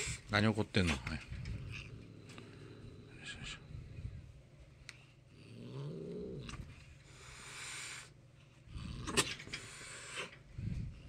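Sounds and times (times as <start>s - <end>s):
cat growling and yowling: 5.4s - 6.8s
cat hissing and spitting: 9.0s - 10.4s.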